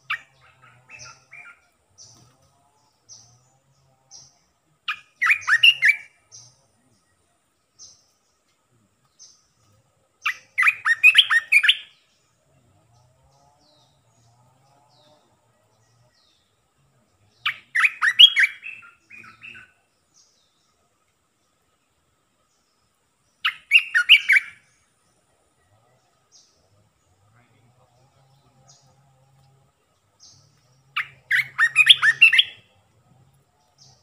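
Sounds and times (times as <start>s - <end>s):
bird warbling song: 0.0s - 34.0s.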